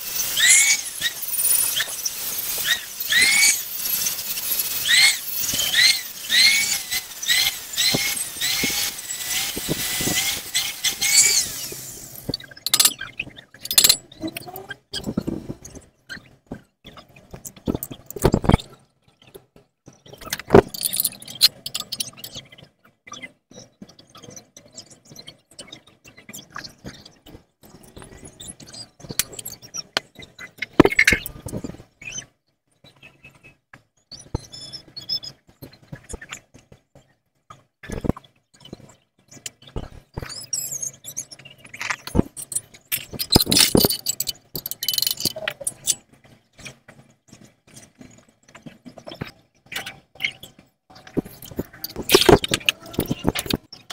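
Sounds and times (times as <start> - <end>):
gas torch flame hissing: 0.0 - 12.4
metal pipe knocking and scraping: 0.4 - 14.6, 29.1 - 31.8, 41.8 - 46.0, 51.1 - 53.7.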